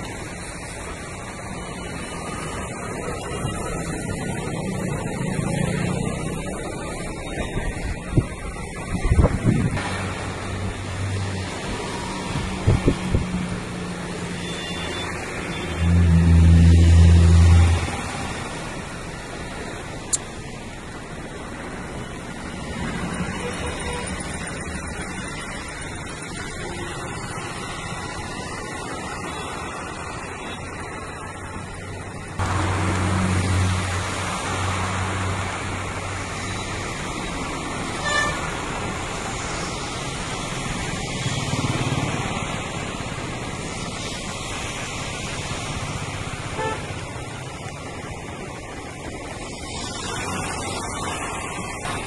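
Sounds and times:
tyres on wet road: 0:00.0 - 0:52.0
vehicle engines passing: 0:00.0 - 0:52.0
vehicle horn toot: 0:14.4 - 0:15.8, 0:38.0 - 0:38.4, 0:46.6 - 0:46.9
heavy rain hissing: 0:16.8 - 0:52.0.

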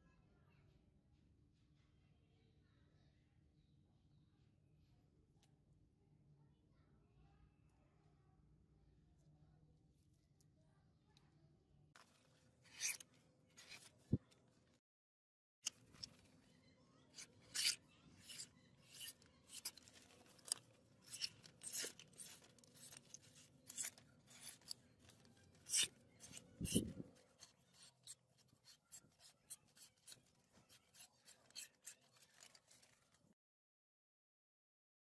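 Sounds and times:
knife slicing through paper: 0:12.7 - 0:14.0, 0:17.2 - 0:33.2.

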